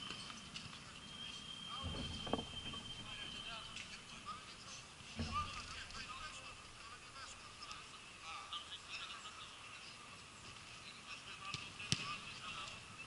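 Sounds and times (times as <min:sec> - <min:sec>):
distant calls: 0:00.0 - 0:11.4
steady low hiss: 0:00.0 - 0:13.0
high chirps: 0:00.1 - 0:05.0.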